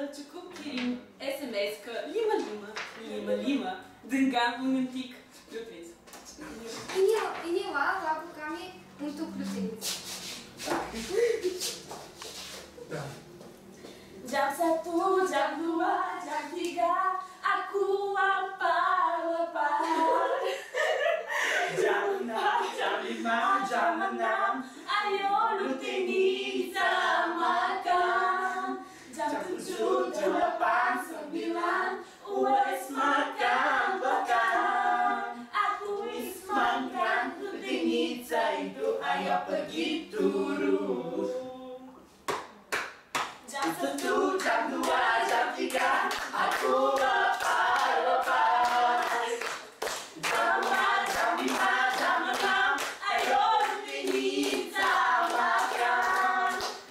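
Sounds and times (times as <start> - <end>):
group singing a cappella: 8.8 - 42.3, 43.4 - 56.9
hands clapping: 42.2 - 56.9.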